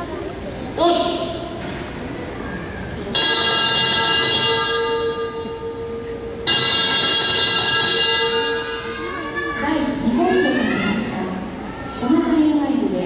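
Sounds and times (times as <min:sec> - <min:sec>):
loud bell ringing: 0:03.1 - 0:10.1.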